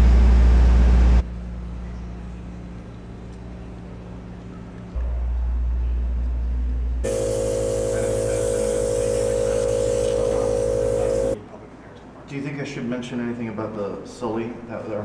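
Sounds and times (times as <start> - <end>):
machine-like hum: 0.0 - 11.4
hiss: 7.0 - 11.4.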